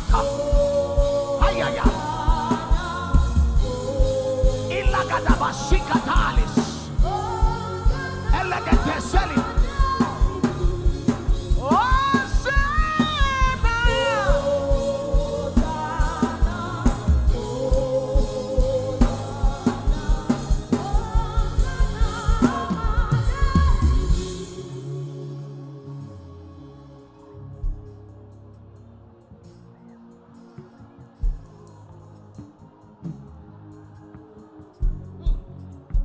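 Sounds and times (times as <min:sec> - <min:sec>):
steady drum beat: 0:00.0 - 0:24.8
gospel singing: 0:00.0 - 0:36.0.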